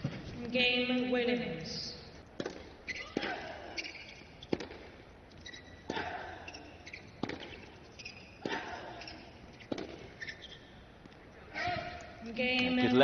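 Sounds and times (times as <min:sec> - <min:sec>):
tennis racket hitting ball: 0:02.4 - 0:10.4.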